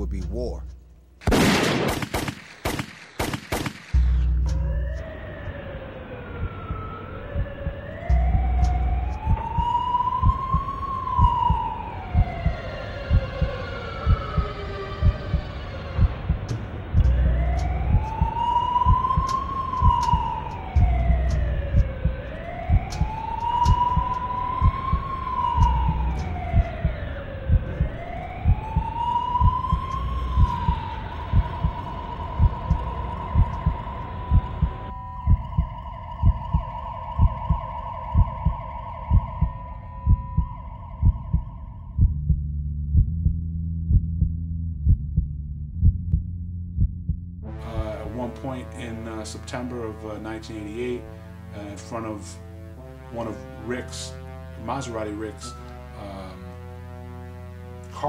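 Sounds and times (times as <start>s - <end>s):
low thumping pulse: 3.2s - 49.0s
siren wailing up and down: 4.0s - 42.1s.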